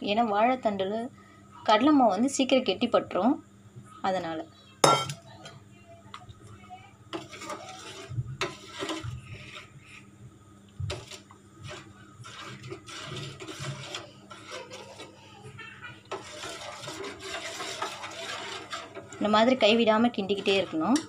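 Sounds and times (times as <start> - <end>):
ladle scraping a steel pot: 7.1 - 10.0, 10.9 - 21.0.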